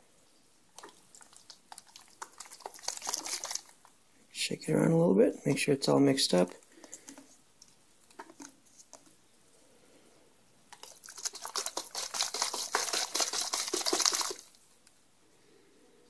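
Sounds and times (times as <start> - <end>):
liquid sloshing in plastic container: 0.7 - 4.0, 6.4 - 9.2, 10.7 - 14.6.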